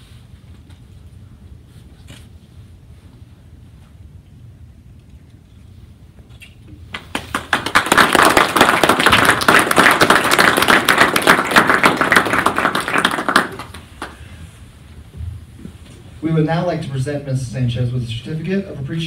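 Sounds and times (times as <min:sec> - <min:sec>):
audience applauding: 0:06.9 - 0:14.3.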